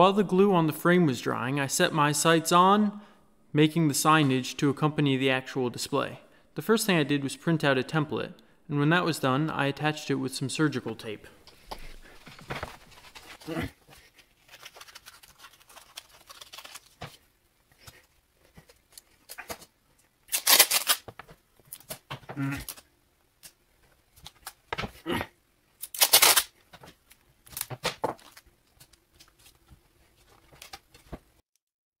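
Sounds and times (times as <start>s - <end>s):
paper rustling: 11.5s - 19.7s, 25.8s - 31.4s
tape ripping: 12.4s - 17.2s, 20.3s - 23.6s, 25.8s - 26.6s.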